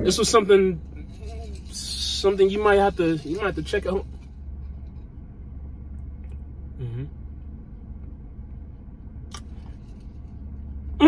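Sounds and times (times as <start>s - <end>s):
car cabin hum: 0.0s - 11.0s
man humming closed-mouth: 6.8s - 7.1s.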